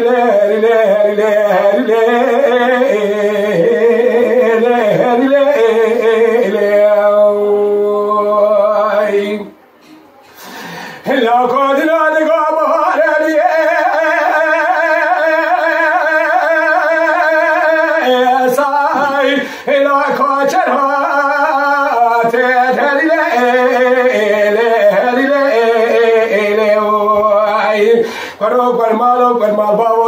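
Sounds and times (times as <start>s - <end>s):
man singing unaccompanied: 0.0s - 9.6s, 11.0s - 30.0s
singer's breath: 9.8s - 11.1s, 28.0s - 28.4s.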